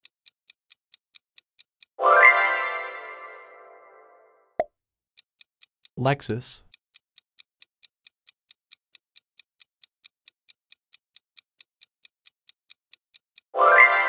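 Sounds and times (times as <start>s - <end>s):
clock-like timer ticks: 0.0s - 2.4s, 5.2s - 14.0s.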